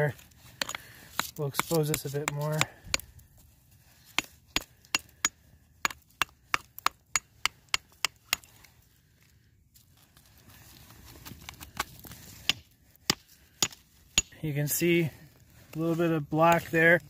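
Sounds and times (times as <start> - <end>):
rock hammer chipping rock: 0.6 - 3.1, 12.4 - 14.4.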